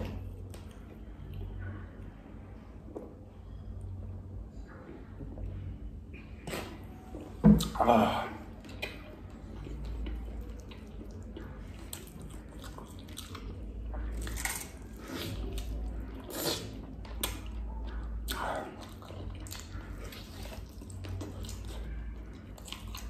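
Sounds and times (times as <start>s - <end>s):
chewing and biting: 8.6s - 23.0s.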